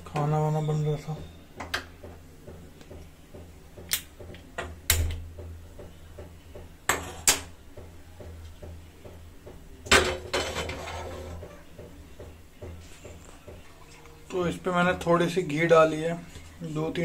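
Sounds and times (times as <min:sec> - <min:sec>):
metal cookware clanking: 0:09.9 - 0:11.6.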